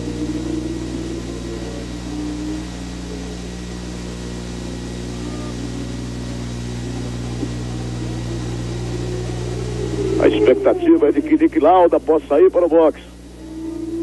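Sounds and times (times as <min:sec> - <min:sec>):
faint racing car engines: 0:00.0 - 0:14.0
television recording hum and hiss: 0:00.0 - 0:14.0.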